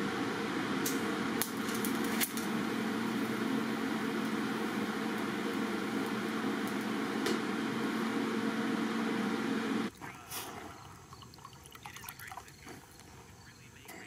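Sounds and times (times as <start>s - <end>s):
welder humming: 0.0s - 9.9s.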